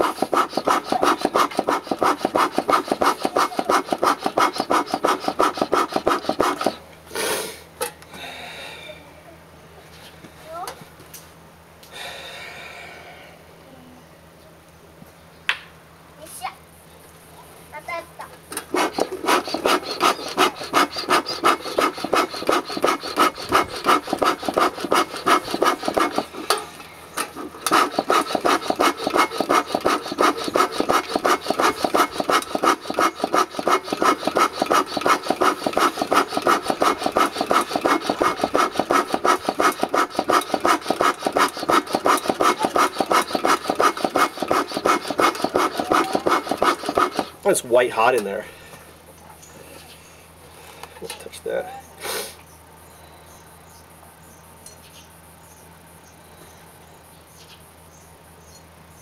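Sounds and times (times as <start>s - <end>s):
bellows pumping puffs of air: 0.0s - 9.0s, 18.6s - 47.6s, 52.0s - 52.5s.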